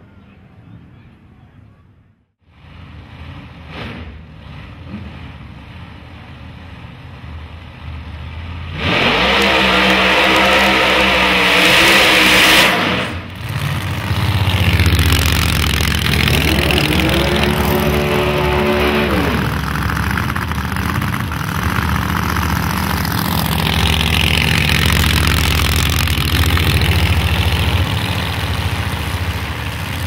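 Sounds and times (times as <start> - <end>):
car engine lumpy idle and revving: 2.4 - 30.0
tyres squealing in a burnout: 8.8 - 13.2.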